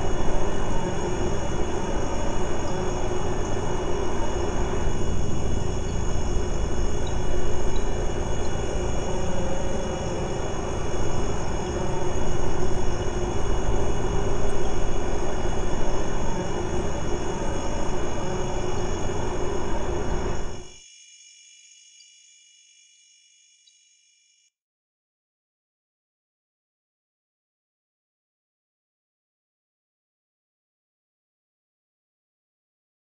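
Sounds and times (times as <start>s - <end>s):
dense steady rumble: 0.0s - 20.7s.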